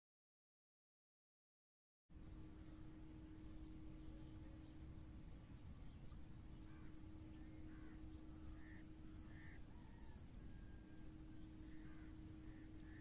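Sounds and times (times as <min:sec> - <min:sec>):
distant birds calling: 0:02.1 - 0:13.0
steady low hum: 0:02.1 - 0:13.0.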